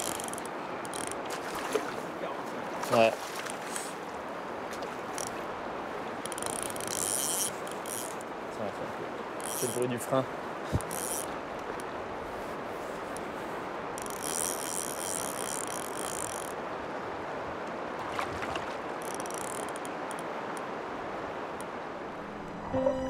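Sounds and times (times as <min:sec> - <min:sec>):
fishing reel drag buzzing: 0:00.0 - 0:01.2, 0:06.2 - 0:08.3, 0:09.4 - 0:09.9, 0:10.8 - 0:11.8, 0:14.0 - 0:16.6, 0:19.0 - 0:20.2
river water rushing: 0:00.0 - 0:23.0.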